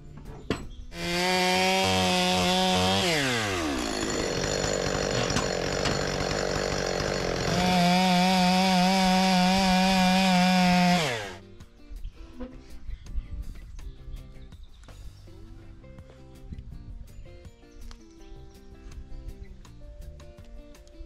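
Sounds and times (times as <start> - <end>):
chainsaw cutting wood: 0.9 - 11.4.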